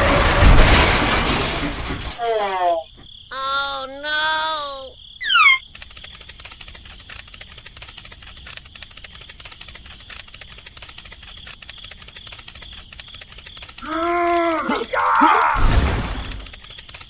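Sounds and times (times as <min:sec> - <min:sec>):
rapid light clicking: 0:05.6 - 0:17.0.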